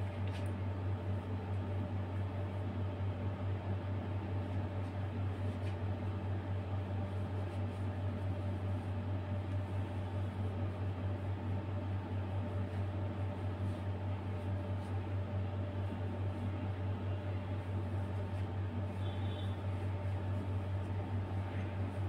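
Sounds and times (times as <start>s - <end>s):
low machine hum with hiss: 0.0s - 22.0s.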